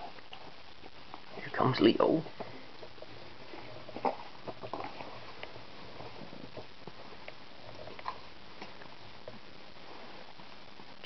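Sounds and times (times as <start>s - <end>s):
cat chewing and licking: 2.8s - 11.0s.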